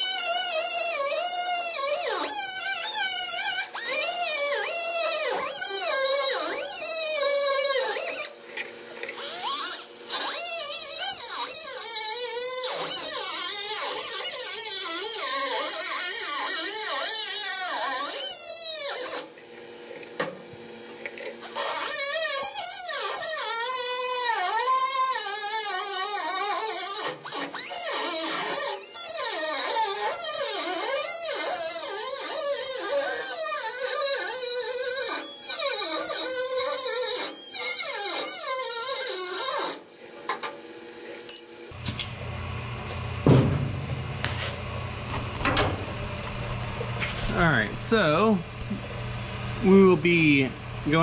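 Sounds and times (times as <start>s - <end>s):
die grinder cutting sheet metal: 0.0s - 8.4s, 9.0s - 19.3s, 21.3s - 40.6s
steady low hum: 41.8s - 51.0s.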